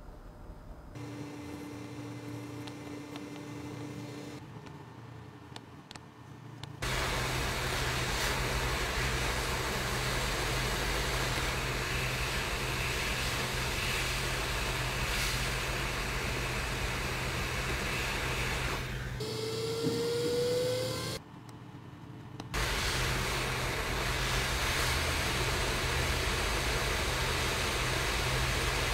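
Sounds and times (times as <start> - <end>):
rising whine: 0.0 - 4.4, 6.8 - 21.2
hot air blower hissing: 1.0 - 4.4, 6.8 - 21.2, 22.6 - 28.9.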